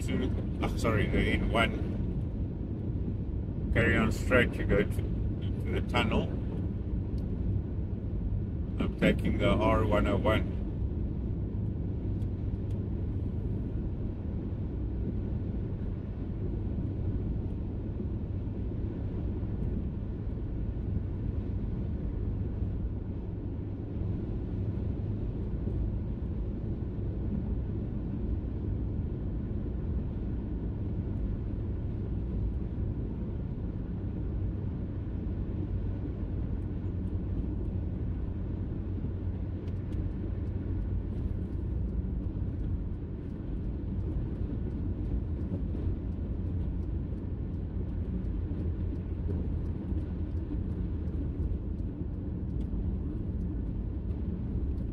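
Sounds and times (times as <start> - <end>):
car cabin road and engine rumble: 0.0 - 54.9.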